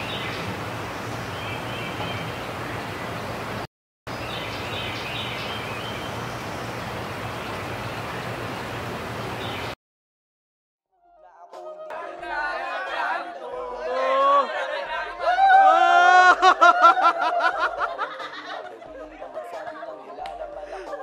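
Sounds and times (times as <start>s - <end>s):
birds chirping: 0.0s - 9.8s.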